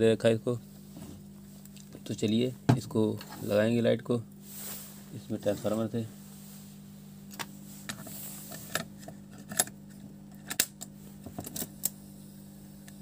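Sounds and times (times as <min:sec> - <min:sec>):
low electrical hum: 0:00.0 - 0:13.0
cassette deck mechanism clicks: 0:10.4 - 0:11.9.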